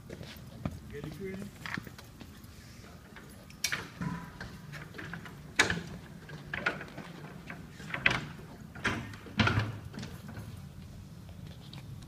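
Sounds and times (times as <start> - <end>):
clunks on metal ladder rungs: 3.1 - 10.7.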